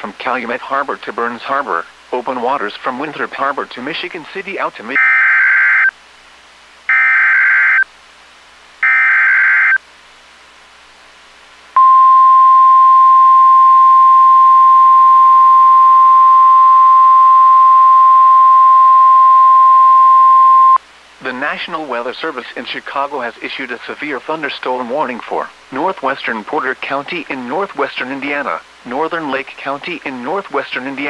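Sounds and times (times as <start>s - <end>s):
steady warning alarm tone: 8.8s - 9.8s, 11.8s - 20.8s.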